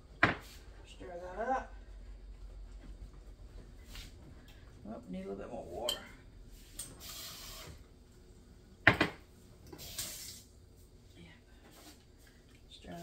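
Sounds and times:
tap water running: 6.8 - 7.8, 9.6 - 10.5.

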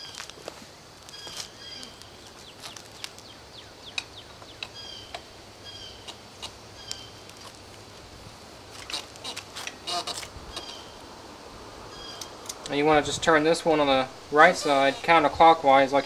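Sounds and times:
bird chirping: 1.1 - 7.3, 9.2 - 11.1, 11.9 - 12.6.

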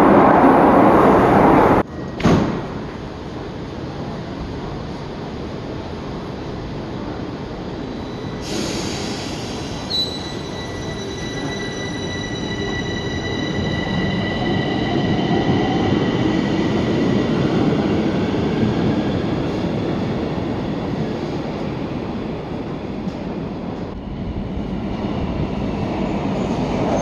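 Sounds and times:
air hiss: 8.4 - 10.1.

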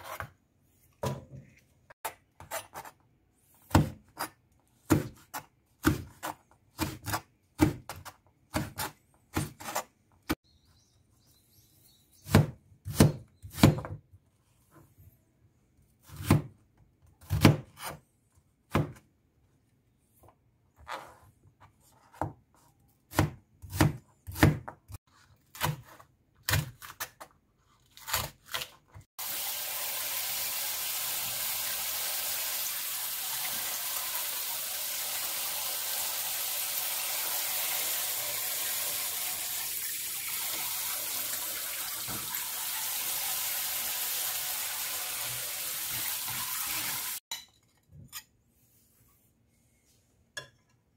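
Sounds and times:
knife chopping onion on board: 3.6 - 10.3, 12.2 - 14.0, 16.0 - 16.6, 17.2 - 18.0, 18.7 - 19.0, 23.0 - 27.3.

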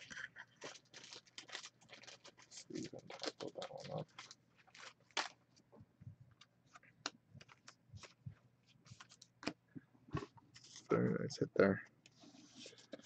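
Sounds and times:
handling trading cards: 6.4 - 8.2.

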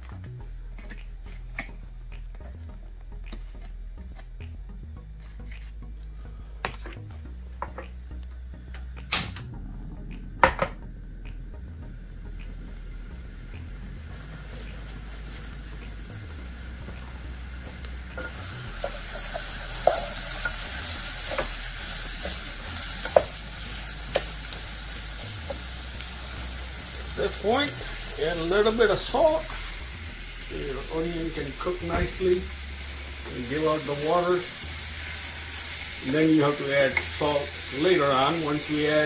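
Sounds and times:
vegetables sizzling in oil: 12.8 - 39.0
wooden spatula knocking pan: 18.2 - 20.6.

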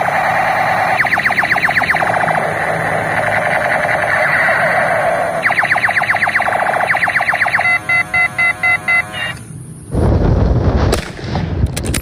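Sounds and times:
fast electronic beeping: 0.0 - 9.4
toy gun electronic zaps: 0.0 - 9.5.

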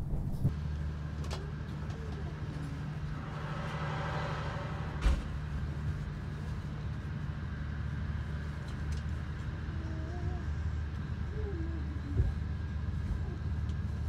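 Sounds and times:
train carriage rumble: 0.0 - 14.0.

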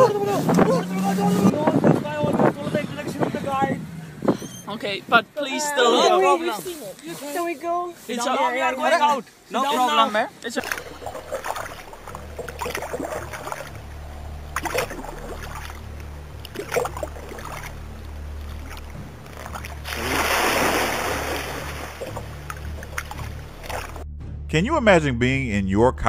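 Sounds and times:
kayak paddle dipping into water: 10.6 - 24.0
rushing splash through water: 10.6 - 24.0
steady low rumble: 10.6 - 26.0.

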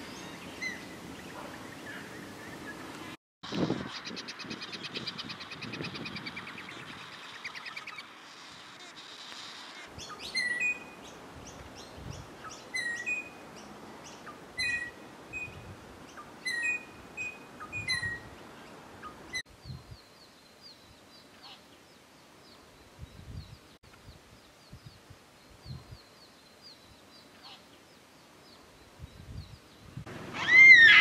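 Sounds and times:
small birds chirping: 0.0 - 31.0.

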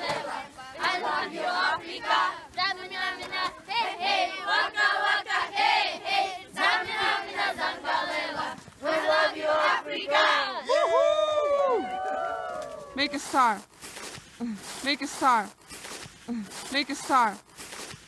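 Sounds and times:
children chanting together: 0.0 - 10.6.

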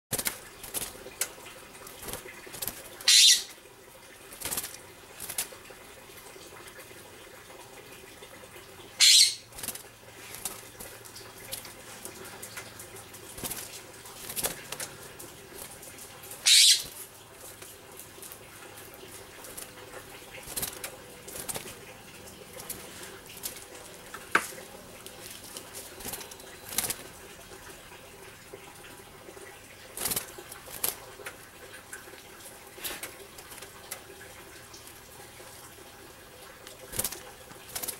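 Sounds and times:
wing flutters and taps: 0.1 - 3.6, 4.3 - 5.7, 9.2 - 27.1, 29.9 - 35.0, 36.5 - 37.9
harsh jay calls: 3.0 - 3.6, 9.0 - 9.5, 16.4 - 17.0.

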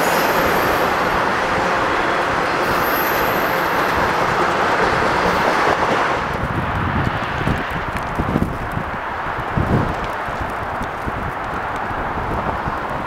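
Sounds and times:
high wheel squeal: 0.0 - 5.6
freight train rumbling past: 0.0 - 13.0.

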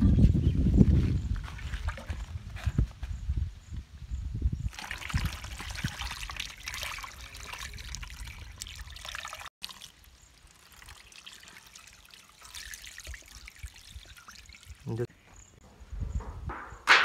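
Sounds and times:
marinade pouring and splashing: 4.7 - 15.1.

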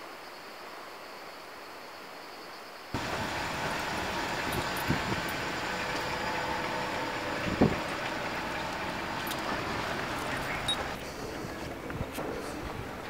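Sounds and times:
road traffic noise: 3.0 - 13.0.

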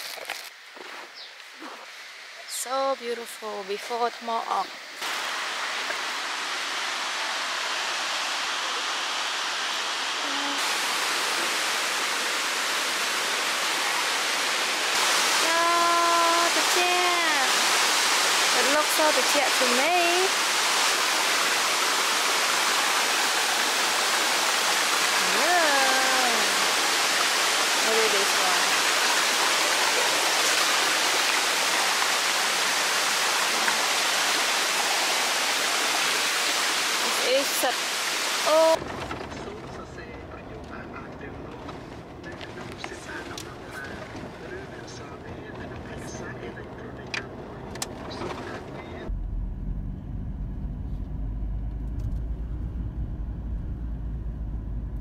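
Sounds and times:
stream splashing over stones: 3.9 - 41.7
water rushing over rocks: 3.9 - 49.0.

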